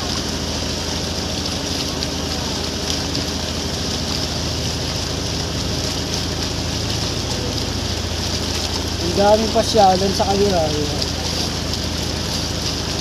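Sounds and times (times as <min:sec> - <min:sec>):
motorboat engine running: 0:00.0 - 0:13.0
rushing water: 0:00.0 - 0:13.0
wind: 0:00.0 - 0:13.0.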